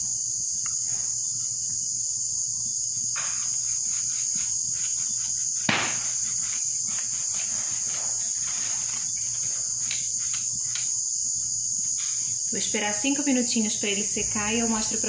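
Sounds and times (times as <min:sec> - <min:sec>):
insects chirring: 0:00.0 - 0:15.0
pastry brush dabbing: 0:03.3 - 0:10.8
sharp knock: 0:05.7 - 0:06.2.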